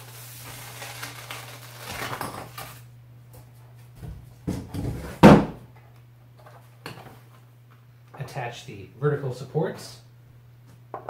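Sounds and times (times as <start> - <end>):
velcro ripping from cardboard: 0.0 - 2.8
cardboard and pipes knocking: 4.0 - 5.6.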